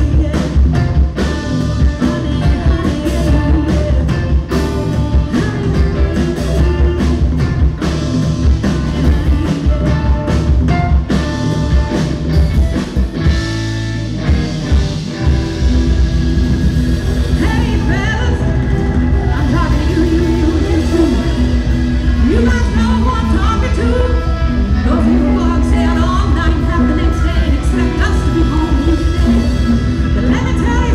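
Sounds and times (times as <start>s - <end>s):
bass guitar: 0.0s - 30.9s
drum kit: 0.0s - 30.9s
electric guitar: 0.0s - 30.9s.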